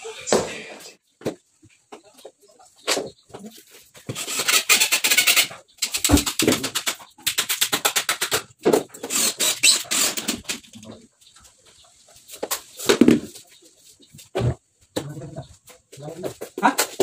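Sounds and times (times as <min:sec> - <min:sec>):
cordless drill driving screws: 0:09.0 - 0:10.4.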